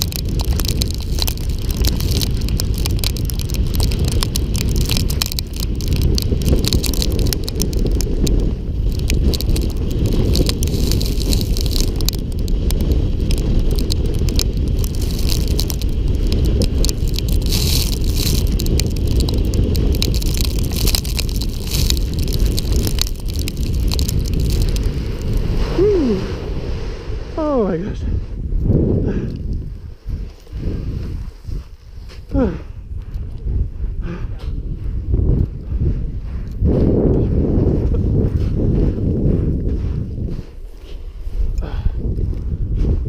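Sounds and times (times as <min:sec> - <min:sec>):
board scraping down gravel: 0:00.0 - 0:27.4
wind buffeting microphone: 0:00.0 - 0:43.0.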